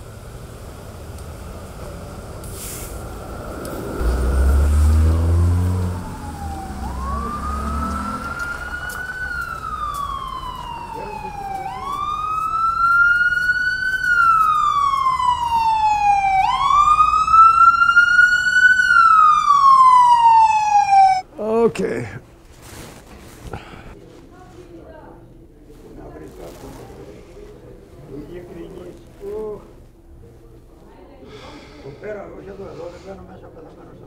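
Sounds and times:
low traffic rumble: 0.0 - 34.0
emergency siren wailing: 3.0 - 21.3.

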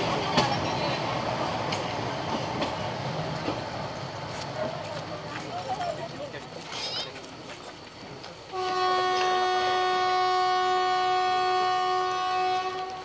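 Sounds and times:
train horn blast: 8.5 - 13.0.

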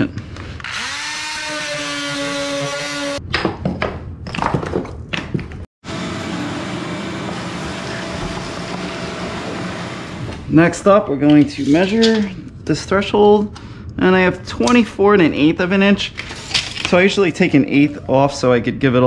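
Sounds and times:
multi-tool cutting wood: 0.6 - 3.2
vacuum running: 5.8 - 10.5.

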